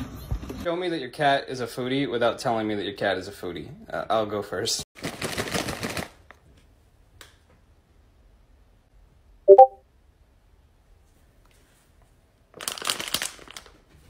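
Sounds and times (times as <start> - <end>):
plastic snack bag rustling: 5.0 - 6.3, 12.5 - 13.8
short loud pitched sound: 9.5 - 9.8.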